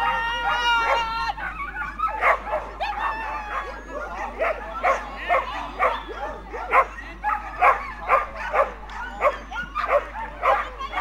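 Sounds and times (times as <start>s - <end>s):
dogs barking and yipping: 0.0s - 11.0s.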